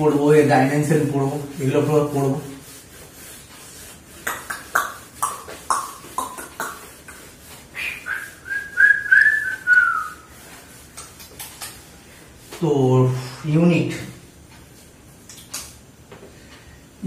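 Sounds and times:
high whistling tone: 7.8s - 10.3s.

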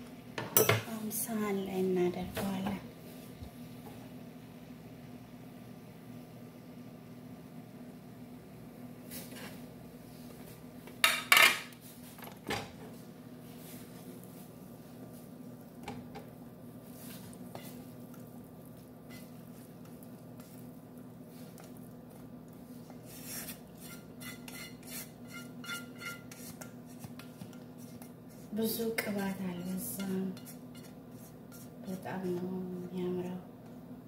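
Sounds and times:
spatula scraping and tapping: 17.0s - 32.9s.

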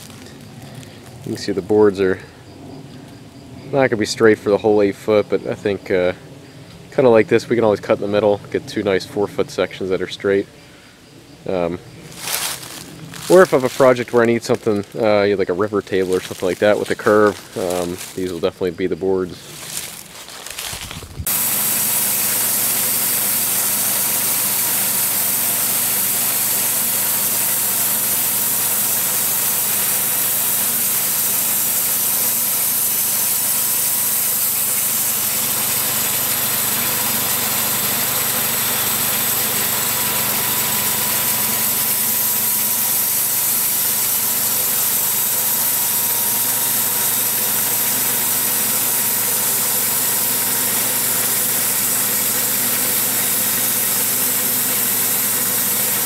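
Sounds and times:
small gas engine running: 0.0s - 56.0s
band blade cutting log: 21.2s - 56.0s.

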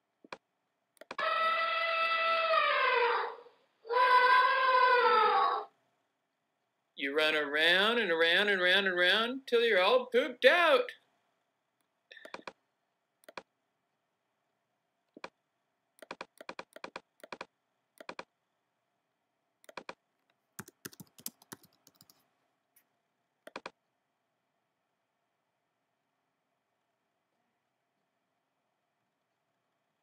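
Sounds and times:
mouse clicks: 13.2s - 13.5s, 16.0s - 18.3s, 19.6s - 20.0s, 22.8s - 23.8s
computer keyboard typing: 16.0s - 18.3s, 19.6s - 20.0s, 20.6s - 22.2s, 23.5s - 23.8s.

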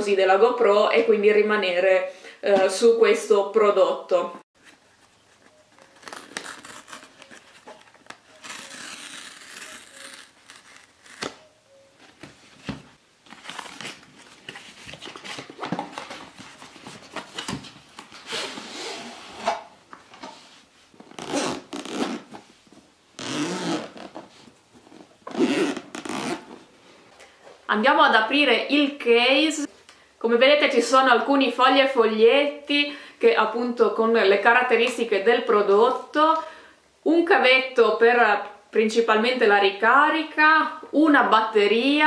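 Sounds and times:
cardboard scraping and rustling: 12.1s - 20.7s.

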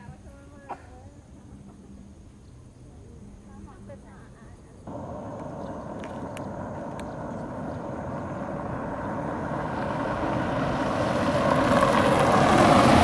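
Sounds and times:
vehicle engine and road noise: 3.0s - 13.0s
faint clicks: 5.3s - 7.5s.

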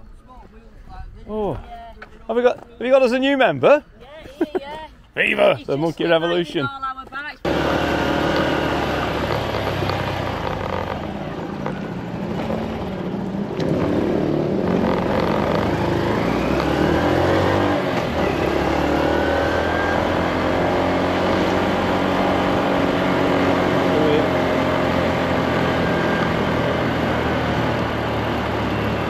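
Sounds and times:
small motorcycle engine accelerating: 7.5s - 29.0s.

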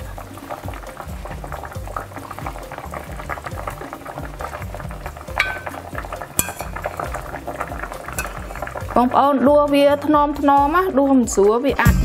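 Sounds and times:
sauce bubbling in a pot: 0.0s - 11.1s
metal spoon clinking: 5.4s - 7.2s, 8.1s - 8.8s.

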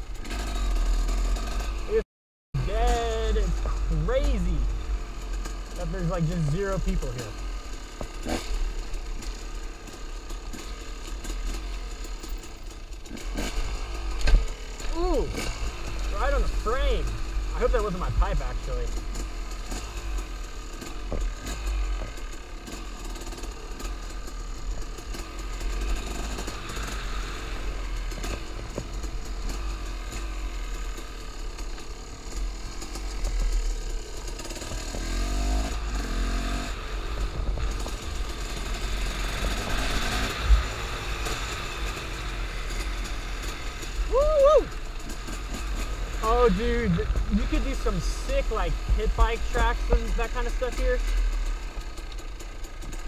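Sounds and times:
two-stroke motorcycle engine revving: 0.0s - 2.0s, 2.6s - 53.0s.

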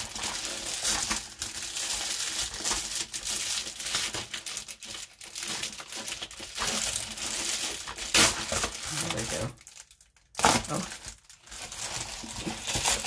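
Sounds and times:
plastic mailer crinkling: 0.0s - 13.0s.

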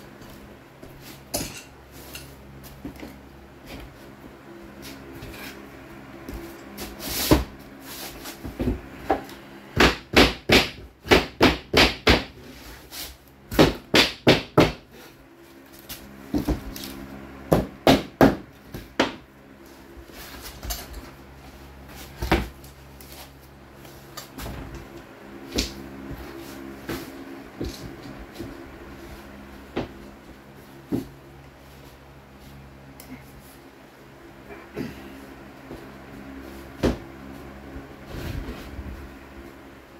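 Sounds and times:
steady low hum: 0.0s - 39.9s
hammer knocking flooring planks: 9.8s - 12.4s, 13.5s - 14.8s, 17.5s - 19.2s.

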